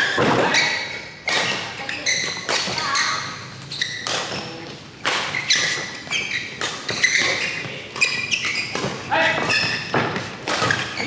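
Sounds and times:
shoes squeaking on court: 0.0 - 11.0
rackets striking shuttlecock: 3.9 - 11.0.

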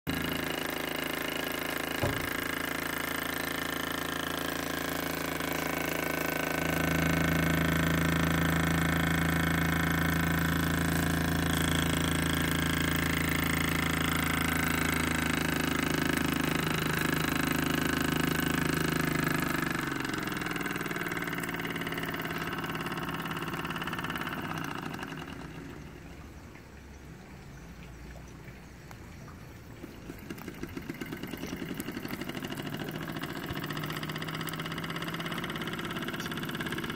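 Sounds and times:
toy steam engine running: 30.2 - 36.9.

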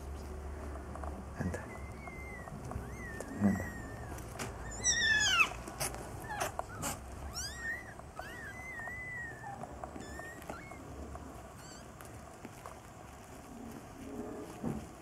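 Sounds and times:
kittens mewing: 1.3 - 12.0.

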